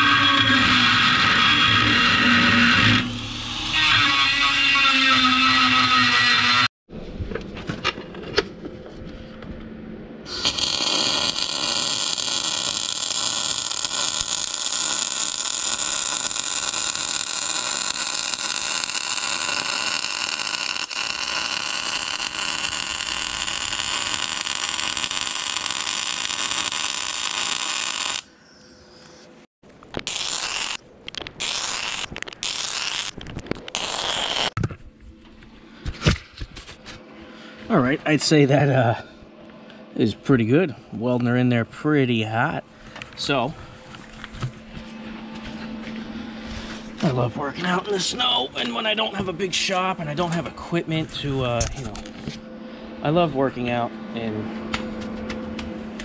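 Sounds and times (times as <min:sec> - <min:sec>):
grinder whining against steel: 0:00.0 - 0:06.7, 0:10.3 - 0:29.3
welding arc crackling: 0:10.3 - 0:28.3, 0:29.9 - 0:34.6.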